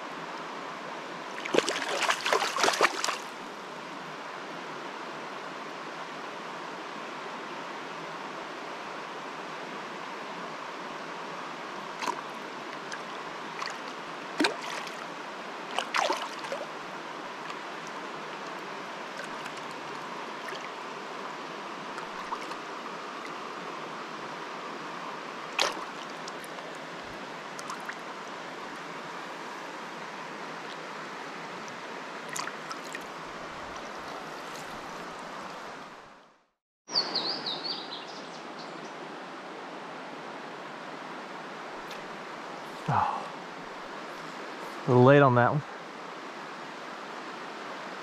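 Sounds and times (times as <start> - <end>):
river water flowing over rocks: 0.0 - 36.4, 37.0 - 48.0
splashes and knocks in water: 1.4 - 3.3, 12.0 - 12.3, 13.6 - 15.0, 15.7 - 16.7, 22.0 - 22.6, 25.5 - 26.6, 32.3 - 33.0.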